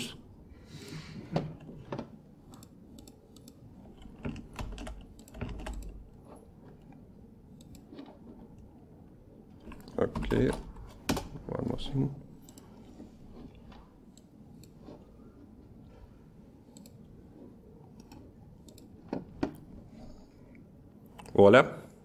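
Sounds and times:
computer keyboard typing: 0:02.5 - 0:08.7, 0:17.9 - 0:19.6.

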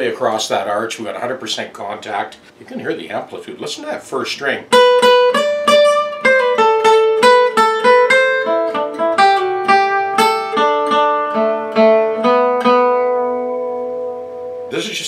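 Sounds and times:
acoustic guitar picked melody: 0:04.5 - 0:15.0.

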